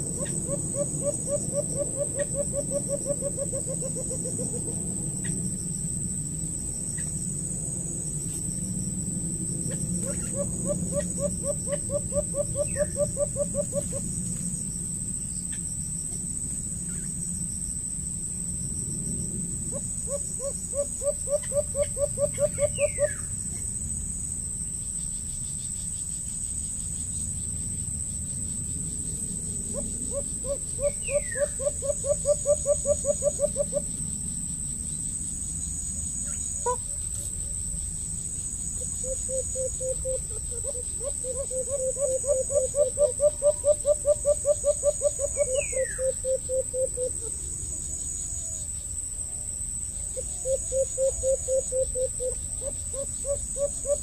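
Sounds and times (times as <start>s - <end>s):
bird hooting: 0.0s - 4.8s, 9.8s - 14.1s, 19.7s - 23.3s, 29.7s - 33.9s, 38.9s - 47.3s, 50.2s - 54.0s
high insect drone: 0.0s - 54.0s.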